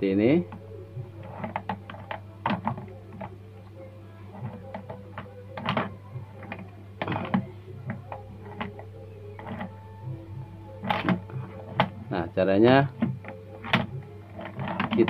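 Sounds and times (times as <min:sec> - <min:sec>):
hands handling circuit panel: 0:04.3 - 0:09.8, 0:10.8 - 0:12.0, 0:12.9 - 0:15.0.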